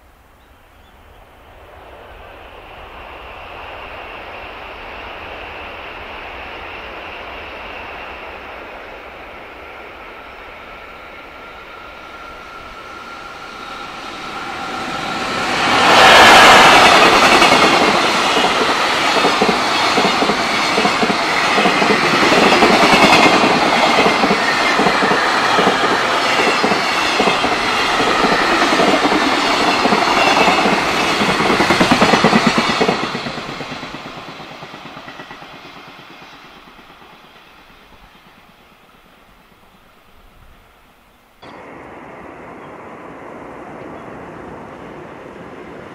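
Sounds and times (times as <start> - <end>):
electric locomotive passing: 0.0 - 45.9
train wheels clattering on rails: 12.2 - 39.9.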